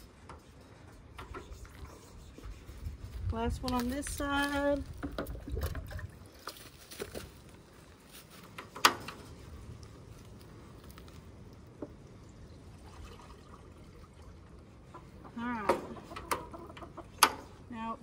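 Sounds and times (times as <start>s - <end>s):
water pouring into bowl: 12.7s - 14.6s.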